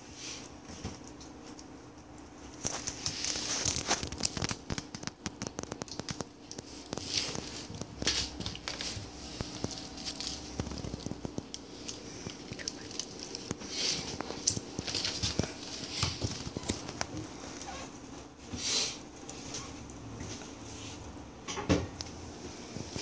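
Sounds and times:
claws scratching on tile: 0:02.6 - 0:17.2
netting rustling: 0:02.6 - 0:18.0.

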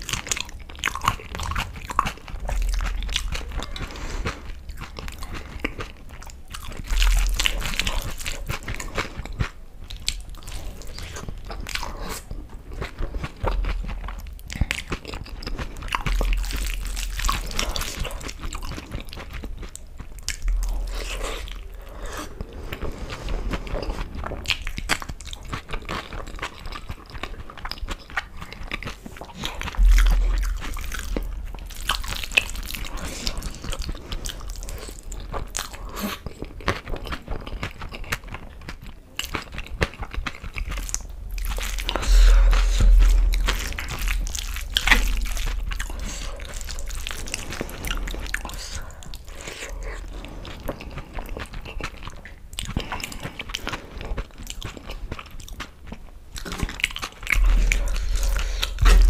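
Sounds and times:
person chewing with wet mouth sounds: 0:00.0 - 0:59.0
low thumps: 0:29.5 - 0:34.6, 0:40.6 - 0:48.4, 0:57.3 - 0:59.0.

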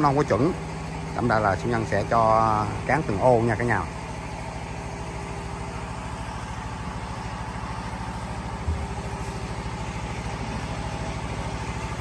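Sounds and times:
engine idling: 0:00.0 - 0:12.0
dull thump: 0:08.6 - 0:09.4.

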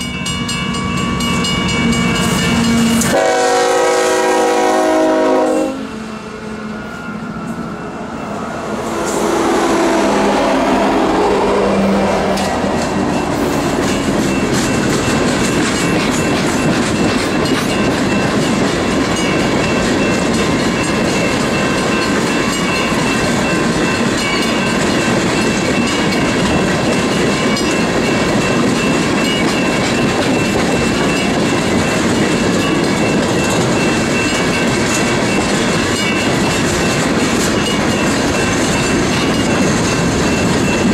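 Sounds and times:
train wheels clickety-clack: 0:00.0 - 0:05.7, 0:10.1 - 0:40.9
locomotive tone falling: 0:00.1 - 0:16.7.

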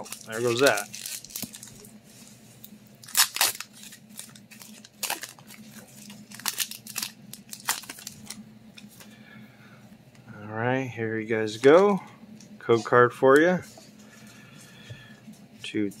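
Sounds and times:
foil wrapper crinkling and tearing: 0:00.0 - 0:02.0, 0:02.6 - 0:08.4.

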